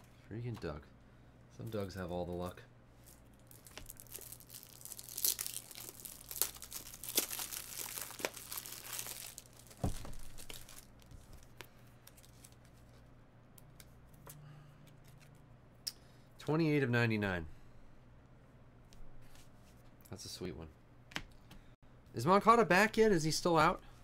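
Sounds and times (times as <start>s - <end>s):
foil wrapper crinkling and tearing: 3.1s - 12.7s.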